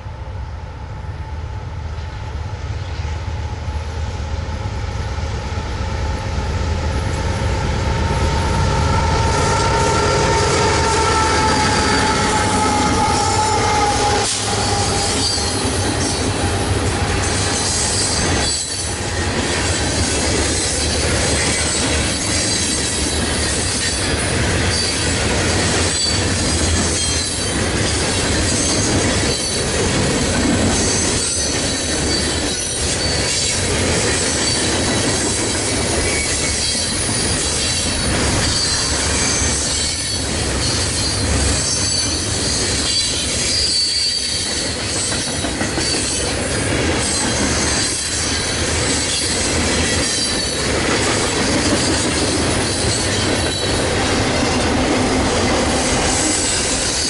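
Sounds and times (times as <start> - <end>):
freight train wheels on rail: 0.0 - 57.0
rail clacks: 2.8 - 57.0
high-pitched wheel squeal: 8.3 - 19.2, 30.8 - 33.5, 36.0 - 46.2.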